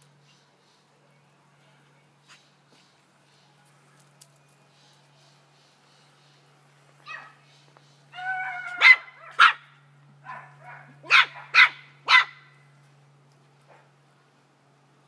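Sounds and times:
puppy barking in high yaps: 7.0s - 7.4s, 8.2s - 12.6s.

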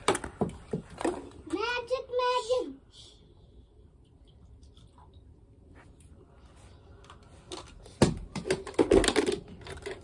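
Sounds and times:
small objects clicking and clattering: 7.1s - 10.0s.

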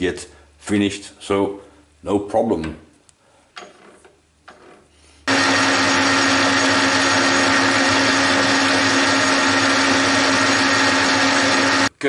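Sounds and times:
metal lathe humming and whining: 5.3s - 11.9s.

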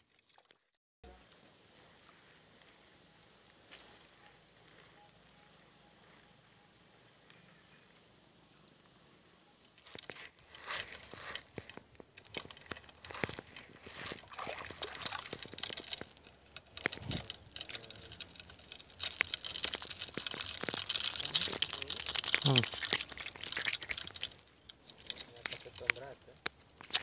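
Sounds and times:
fishing tackle clicks and clinks: 9.6s - 27.0s.

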